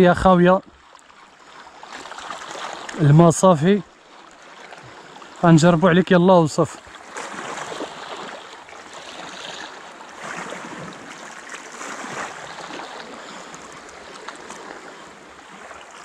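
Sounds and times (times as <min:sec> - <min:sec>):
sea water washing against rocks: 0:04.4 - 0:16.0.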